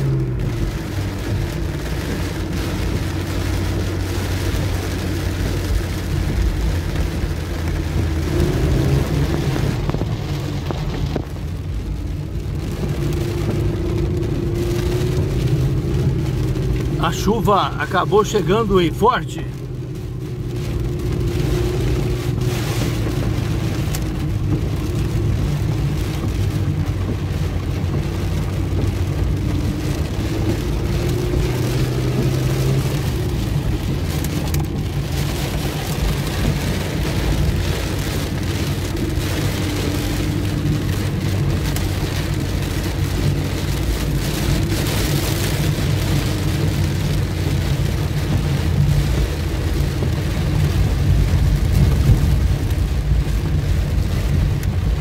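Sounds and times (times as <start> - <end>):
car engine hum: 0.0 - 55.0
heavy rain on car windscreen: 0.0 - 55.0
tyres on wet road: 0.0 - 55.0.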